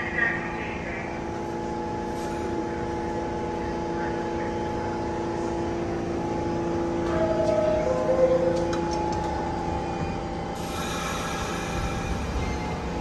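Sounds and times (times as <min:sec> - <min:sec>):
train electrical hum: 0:00.0 - 0:13.0.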